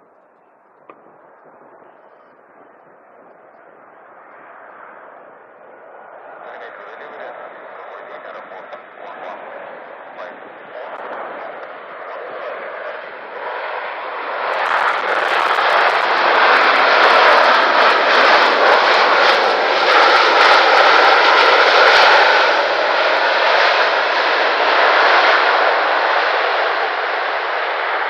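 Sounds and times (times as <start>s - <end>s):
jet airliner engine roar: 0.0s - 28.0s.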